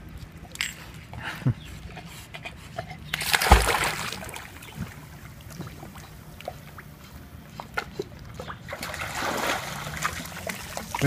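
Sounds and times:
water sloshing and lapping: 0.0s - 11.0s
dog splashing in water: 3.2s - 5.0s, 8.7s - 11.0s.

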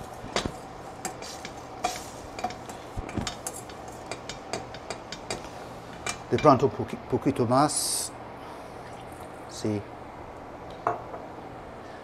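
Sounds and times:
spatula scraping frying pan: 1.0s - 5.5s.

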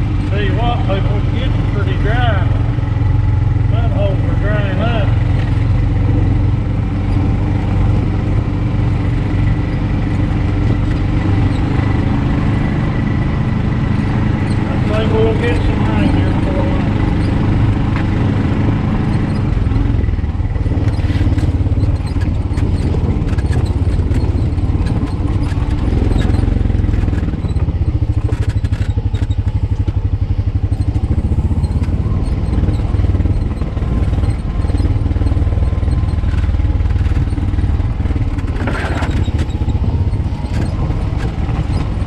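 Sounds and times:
engine running steadily: 0.0s - 42.0s
knocks and rattles: 14.0s - 42.0s.

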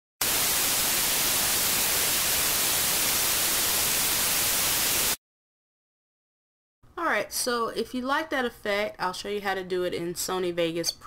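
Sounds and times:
television static hiss: 0.2s - 5.2s.

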